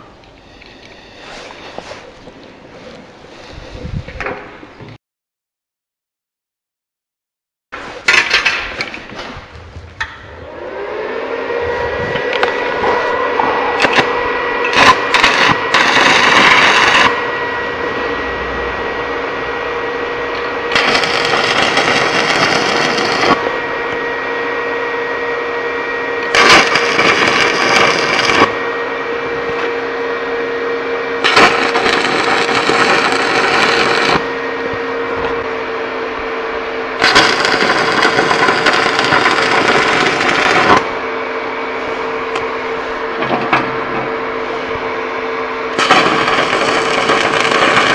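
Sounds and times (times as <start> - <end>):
steady hum: 7.9 - 47.9
electric arc welding: 12.4 - 17.2, 20.4 - 23.5, 26.2 - 28.6, 31.2 - 34.3, 37.0 - 41.0, 45.7 - 47.9.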